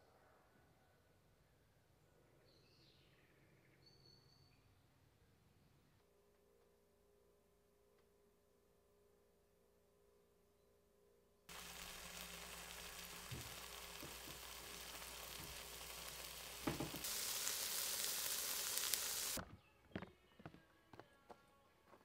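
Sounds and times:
meat sizzling in a frying pan: 11.5s - 19.4s
soft knocks: 16.6s - 17.0s.

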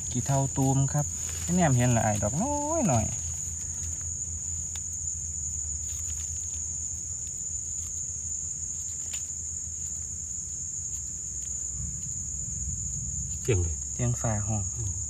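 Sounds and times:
insects droning: 0.0s - 15.0s
low rumble: 11.6s - 14.0s.

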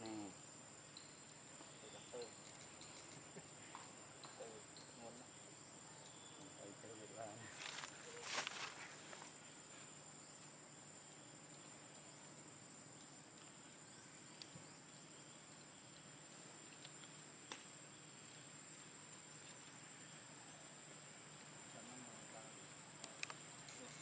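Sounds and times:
high-pitched insect drone: 0.0s - 17.3s, 17.9s - 24.0s
faint clicks: 23.0s - 24.0s.

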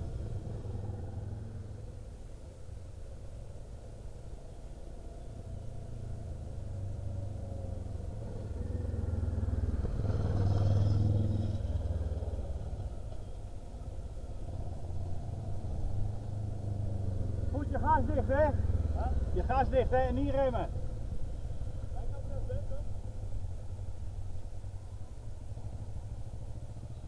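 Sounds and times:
motorcycle engine running: 7.2s - 27.0s.

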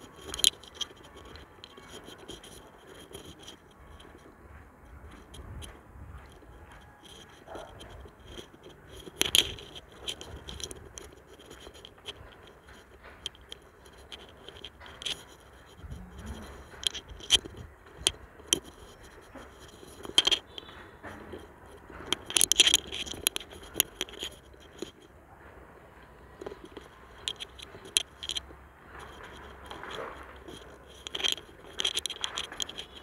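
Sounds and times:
hand rubbing against phone: 6.4s - 25.1s.

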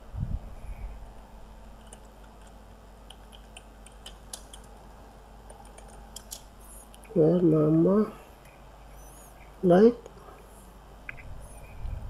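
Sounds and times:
faint low hum: 0.0s - 12.0s
keyboard keys clicking: 1.8s - 4.8s, 5.4s - 7.0s.

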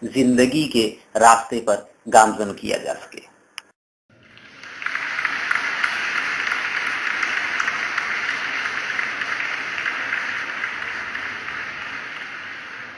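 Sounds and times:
faint crackles: 4.2s - 12.9s
static-like hiss: 4.3s - 12.9s.

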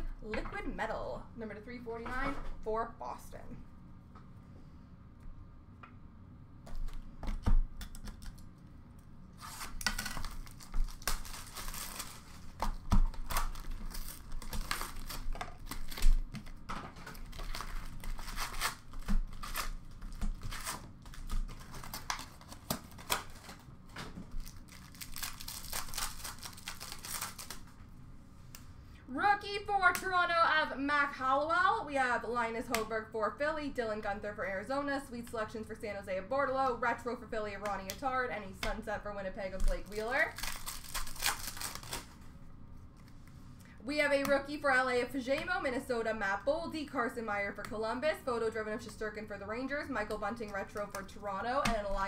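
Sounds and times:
cardboard tearing: 9.4s - 23.6s, 24.3s - 27.7s, 39.7s - 42.2s
wrapper crinkling: 9.4s - 27.8s, 39.5s - 42.2s.

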